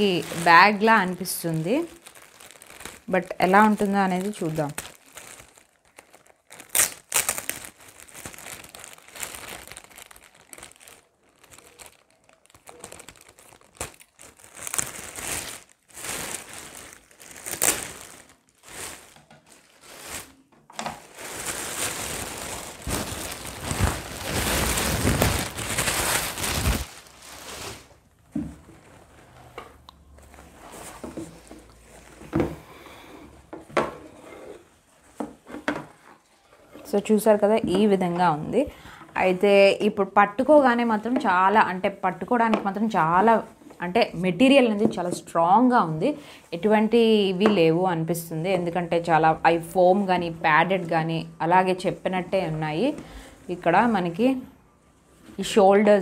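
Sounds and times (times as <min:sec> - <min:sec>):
plastic bag crinkling: 0:00.0 - 0:33.1.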